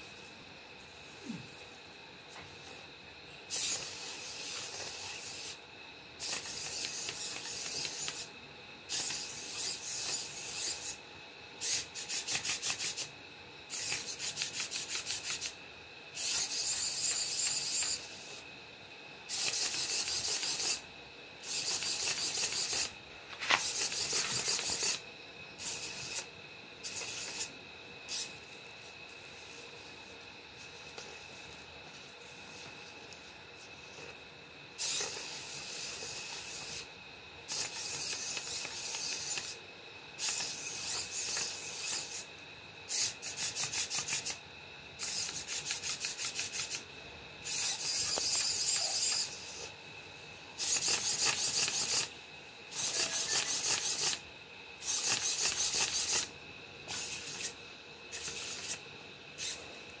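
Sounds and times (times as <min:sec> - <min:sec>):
faint high whine: 0:00.0 - 1:00.0
servo motors whirring and grinding: 0:03.5 - 0:05.6, 0:06.2 - 0:08.3, 0:08.9 - 0:11.0, 0:11.6 - 0:15.6, 0:16.2 - 0:18.5, 0:19.3 - 0:34.2, 0:34.8 - 0:39.6, 0:40.2 - 0:42.3, 0:42.9 - 0:44.4, 0:45.0 - 0:49.8, 0:50.6 - 0:54.2, 0:54.8 - 0:56.3, 0:56.9 - 0:59.8.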